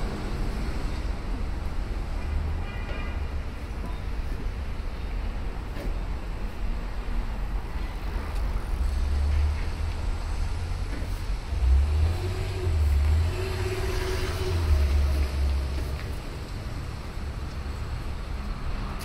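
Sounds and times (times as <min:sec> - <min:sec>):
vehicles rumbling past: 0:07.4 - 0:19.0.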